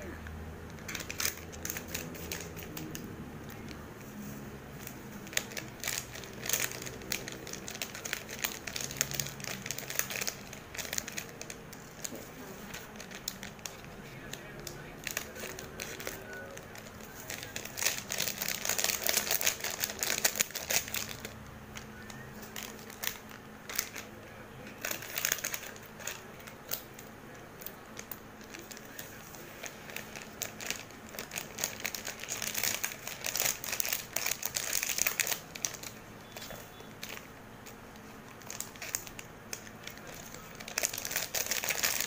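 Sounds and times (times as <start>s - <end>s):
plastic sachets crinkling: 0.0s - 42.0s
scissors cutting plastic: 38.4s - 42.0s.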